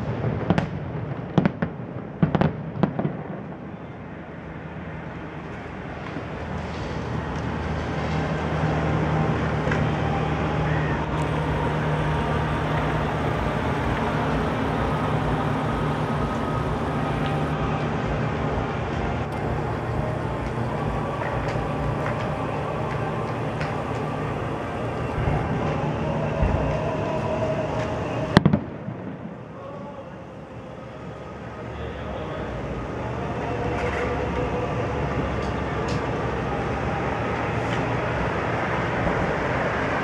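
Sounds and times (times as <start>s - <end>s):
distant fireworks bursts crackling: 0.0s - 3.6s, 5.5s - 29.4s
steady low hum: 6.2s - 40.0s.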